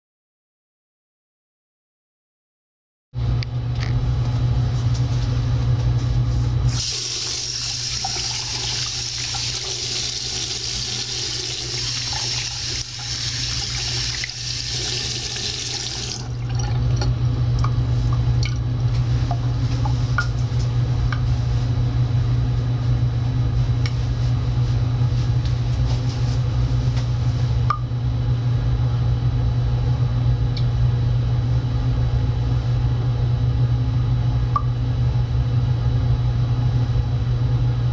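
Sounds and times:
steady low hum: 0:03.2 - 0:37.9
faucet running: 0:06.7 - 0:17.0.

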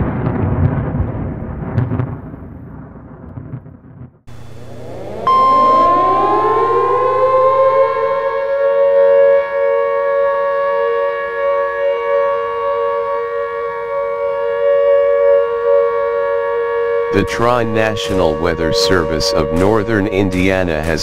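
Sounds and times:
high-pitched alert tone: 0:04.3 - 0:08.9
warning siren wailing: 0:04.3 - 0:21.0.

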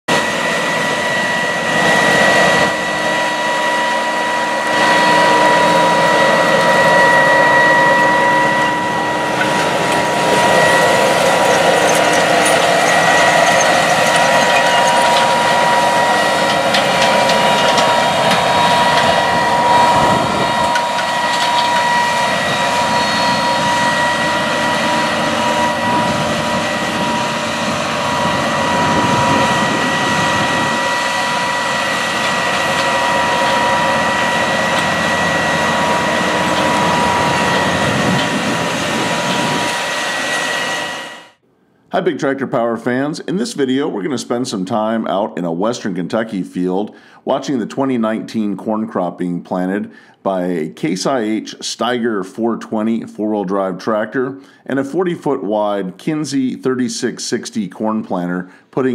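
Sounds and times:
steady high whine: 0:00.1 - 0:42.6
tractor engine under load: 0:04.4 - 0:41.0
planter clattering: 0:09.0 - 0:23.4, 0:29.1 - 0:39.8.

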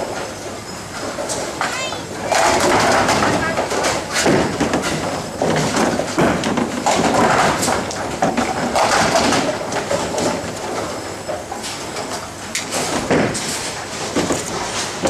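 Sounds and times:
busy bowling alley clatter: 0:00.0 - 0:15.0
pins knocked over: 0:02.3 - 0:11.4.

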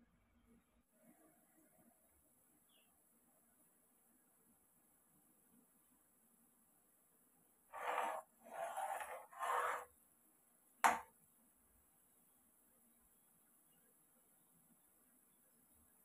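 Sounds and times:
metal spoon scraping a pan: 0:07.8 - 0:09.9.

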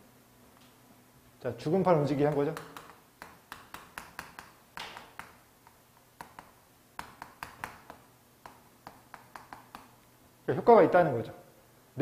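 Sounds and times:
chalk tapping on chalkboard: 0:02.0 - 0:10.0.

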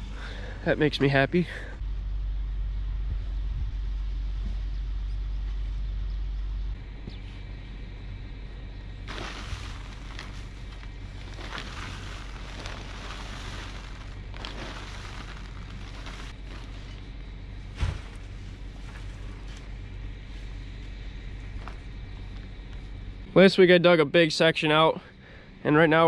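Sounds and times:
low rumble: 0:01.6 - 0:06.9, 0:08.0 - 0:22.7
pitchfork tossing crunchy silage: 0:09.1 - 0:19.7.

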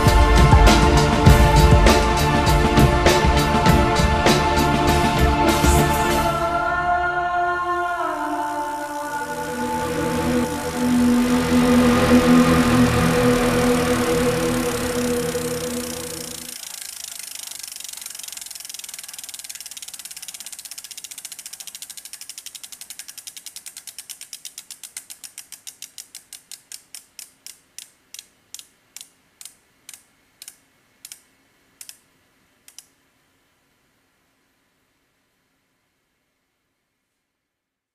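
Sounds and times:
bicycle freewheel hub ratcheting: 0:09.3 - 0:31.2.

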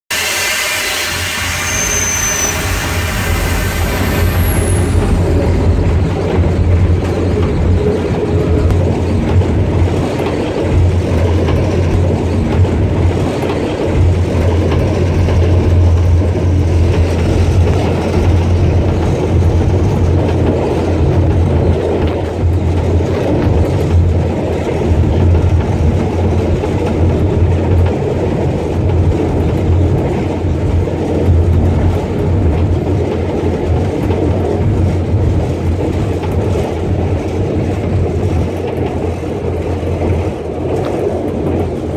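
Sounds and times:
diesel engine drone: 0:00.1 - 0:27.8
train rumbling on track: 0:00.1 - 0:41.9.

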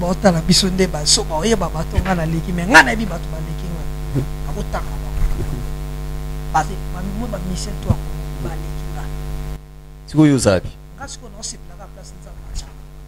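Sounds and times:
electrical mains hum: 0:00.0 - 0:13.0
faint man's voice: 0:02.3 - 0:05.7.

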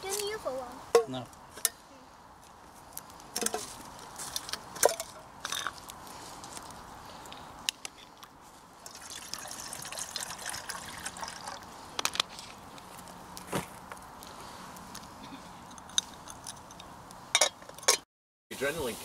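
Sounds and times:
water pouring and trickling: 0:08.8 - 0:13.2.

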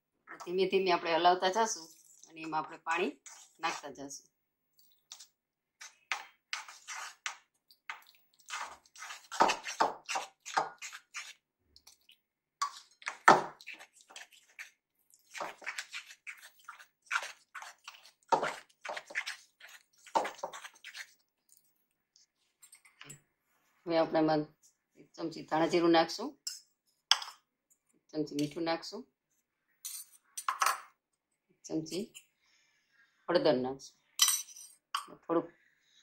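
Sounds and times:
spoon stirring batter in metal bowl: 0:01.6 - 0:04.0, 0:04.7 - 0:23.2.

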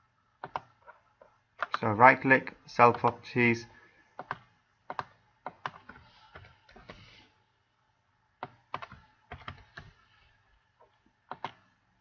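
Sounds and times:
keyboard keys clicking: 0:08.4 - 0:09.9, 0:11.3 - 0:11.6.

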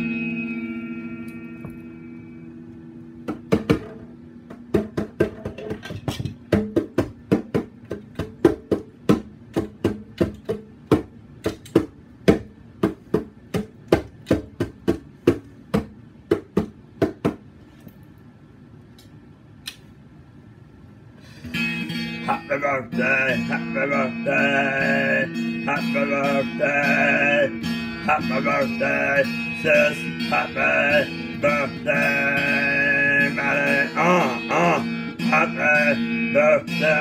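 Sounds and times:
low guitar note ringing: 0:00.0 - 0:03.0
percussive knocks on electric guitar: 0:03.2 - 0:17.4.

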